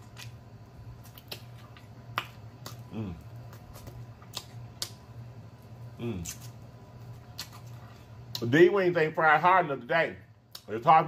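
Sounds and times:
man chewing: 0.0 - 5.0, 5.6 - 8.5
wet lip smacks and mouth clicks: 1.0 - 5.0, 7.3 - 8.5
man humming: 2.9 - 3.3, 6.0 - 6.4.

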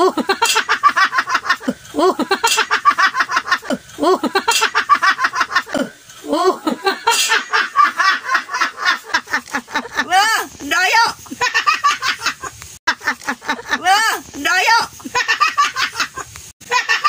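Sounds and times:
people laughing and giggling: 0.0 - 17.0
high-pitched excited voices: 9.9 - 11.4, 13.7 - 15.1.

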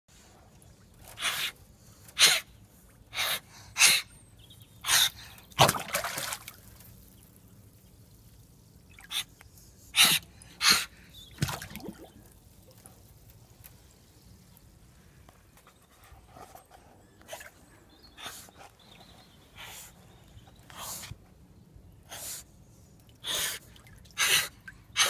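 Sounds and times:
otter splashing: 5.5 - 9.3, 11.4 - 12.7.

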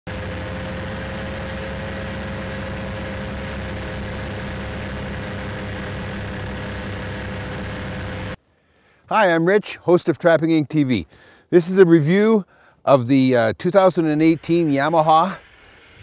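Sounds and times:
snowmobile engine running: 0.1 - 8.4
steady whine: 0.1 - 8.4, 13.0 - 16.0.

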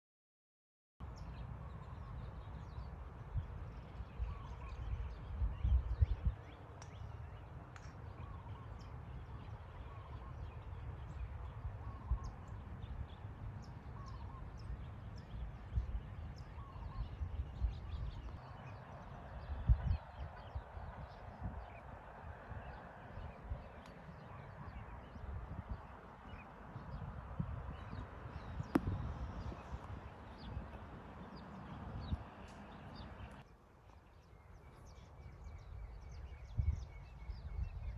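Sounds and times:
small birds chirping: 1.1 - 37.9
wind rumbling on microphone: 1.2 - 33.5, 34.1 - 37.9.

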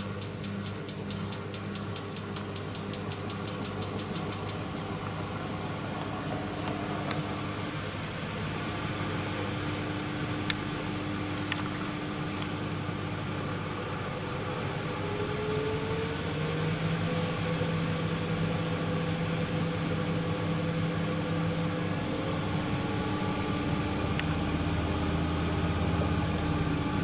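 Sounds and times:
sharp clicks: 0.0 - 4.6
washing machine rapid ticking: 0.0 - 4.6
washing machine hum: 0.0 - 27.0.

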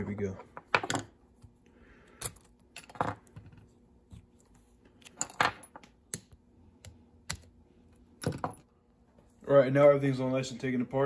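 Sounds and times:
small metal parts clinking: 2.2 - 3.4, 5.0 - 5.9.

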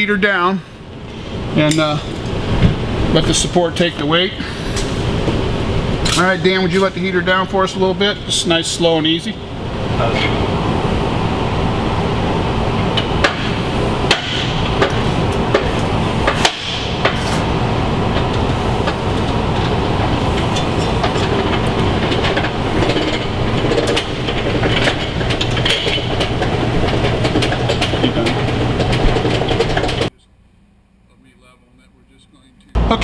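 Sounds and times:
loud rushing hum: 0.0 - 30.2, 32.7 - 33.0
metal clicks and knocks: 20.6 - 30.1.

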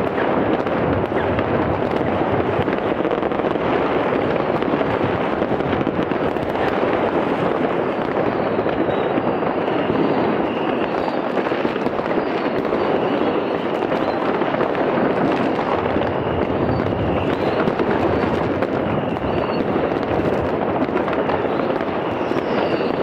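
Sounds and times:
fireworks crackling and banging: 0.0 - 23.0
faint high whistles: 8.0 - 14.6, 15.3 - 20.1, 21.1 - 23.0.

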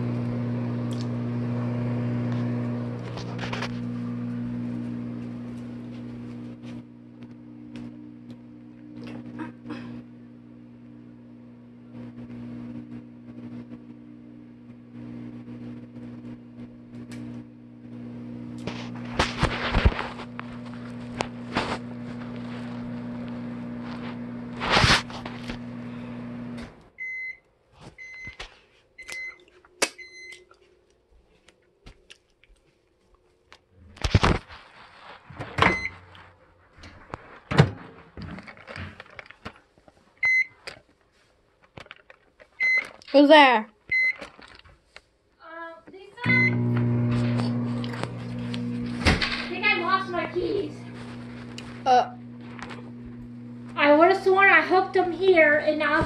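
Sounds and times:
microwave oven humming: 0.0 - 28.4, 35.4 - 36.3, 46.2 - 56.0
microwave end-of-cycle beeps: 26.2 - 27.4, 28.0 - 28.4, 30.0 - 30.4, 35.6 - 36.0, 40.2 - 40.6, 42.6 - 42.9, 43.9 - 44.2, 46.2 - 47.6
thumps and clatter: 37.0 - 40.0
keypad beep: 42.6 - 42.9, 43.9 - 44.2.

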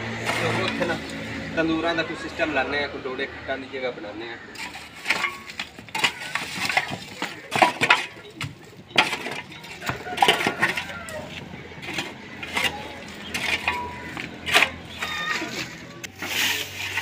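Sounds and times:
metal shovel scraping dirt: 0.0 - 1.2, 4.5 - 17.0
shovel chinking against rubble: 0.2 - 1.1, 4.5 - 17.0.

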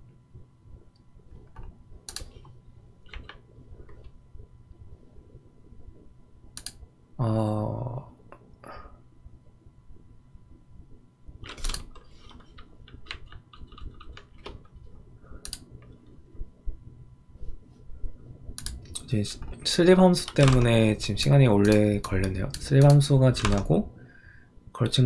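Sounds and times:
keyboard and mouse clicks: 1.4 - 4.2, 6.5 - 6.8, 11.4 - 14.8, 15.4 - 16.1, 18.5 - 19.6, 20.2 - 20.7, 21.6 - 23.7.

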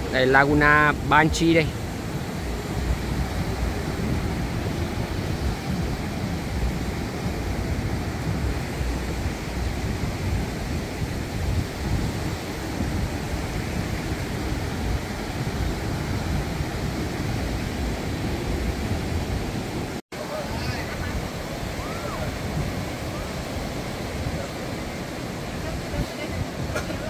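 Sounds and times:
surf breaking on beach: 0.0 - 27.0
wind rumbling on microphone: 0.0 - 27.0.

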